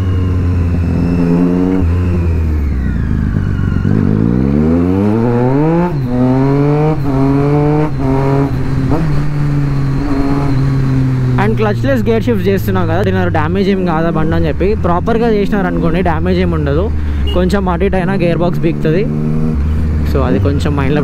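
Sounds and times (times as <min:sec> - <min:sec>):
motorcycle upshifts: 0:00.0 - 0:11.4
motorcycle engine accelerating: 0:00.0 - 0:21.0.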